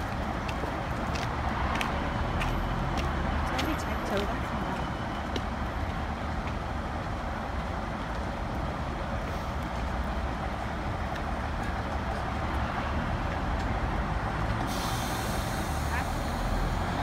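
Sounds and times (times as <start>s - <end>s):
diesel train engines idling: 13.1s - 17.0s.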